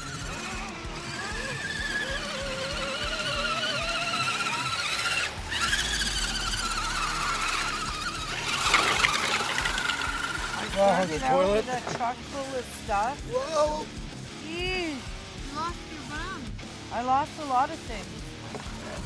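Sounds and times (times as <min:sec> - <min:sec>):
electric motors whining: 0:00.0 - 0:19.0
truck splashing through mud puddle: 0:03.6 - 0:10.6.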